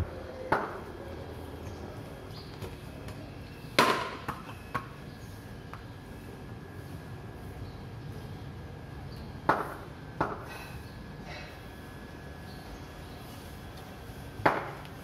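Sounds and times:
bat striking ball: 3.8s - 4.4s
ball bouncing on tiles: 3.8s - 5.0s.

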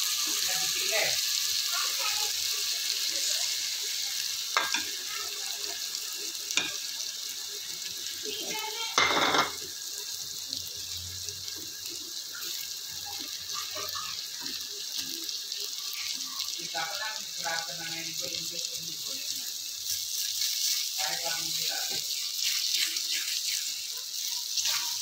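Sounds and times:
vegetables and egg sizzling in pan: 0.0s - 25.0s
sharp knocks on pan: 9.0s - 9.6s.

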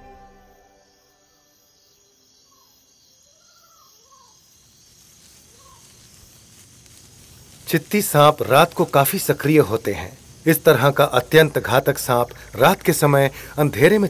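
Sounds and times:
insect drone: 0.0s - 14.0s
chirping calls: 1.0s - 4.7s.

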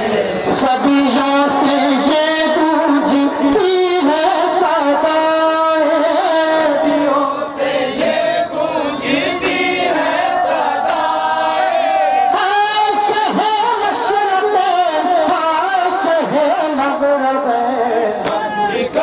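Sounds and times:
person singing into a microphone: 0.0s - 7.6s, 12.3s - 19.0s
men chanting together: 6.0s - 19.0s.

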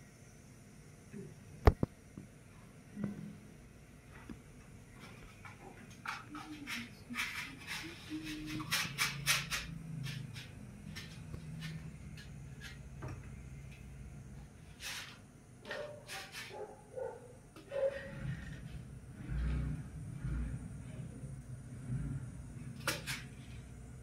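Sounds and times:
low steady hum: 9.5s - 24.0s.

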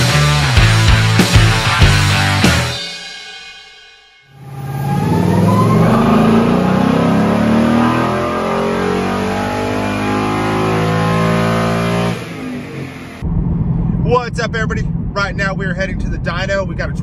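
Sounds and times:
car engine revving: 4.3s - 17.0s.

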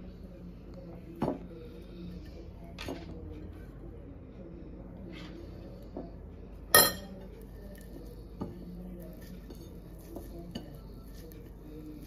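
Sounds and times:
ceramic plate clinking: 6.8s - 7.2s.

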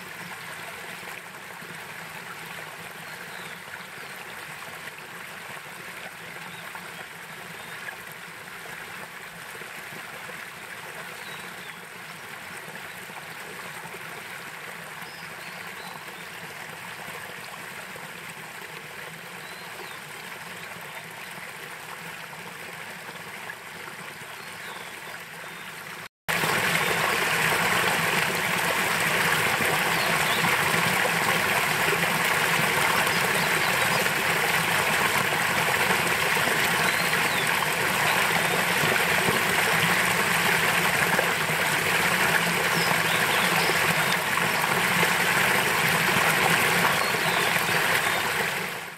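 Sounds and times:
mountain stream rushing: 26.3s - 48.9s.

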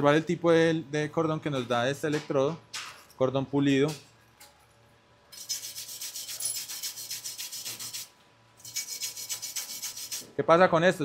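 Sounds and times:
wire brush scrubbing metal: 5.4s - 10.3s.

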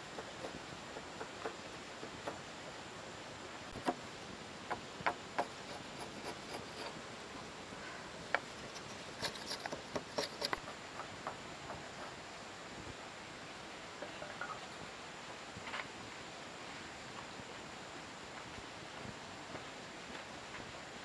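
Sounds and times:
wood chisel scraping timber: 3.7s - 4.0s, 4.7s - 7.0s, 8.3s - 12.2s.

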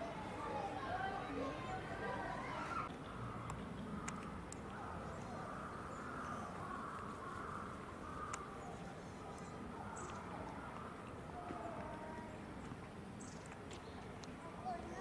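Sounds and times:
murmur of distant voices: 0.0s - 15.0s
light clicks: 3.4s - 4.8s.

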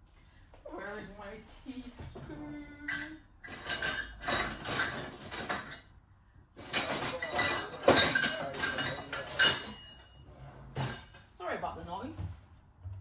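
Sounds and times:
metal cutlery clattering: 3.0s - 5.9s, 6.6s - 10.2s.

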